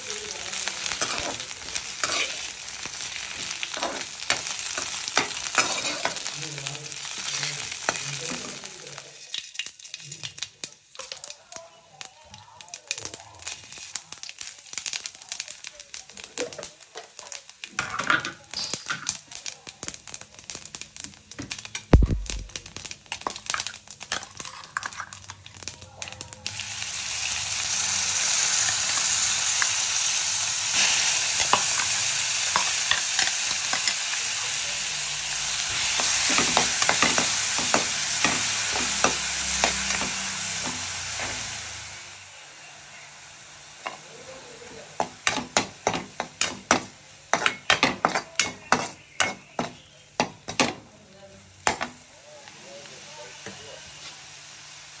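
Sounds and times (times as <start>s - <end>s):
seeds crackling in hot oil: 0.0s - 55.0s
vegetables sizzling in oil: 0.0s - 55.0s
metal spoon scraping pan: 2.0s - 2.5s, 3.7s - 6.2s.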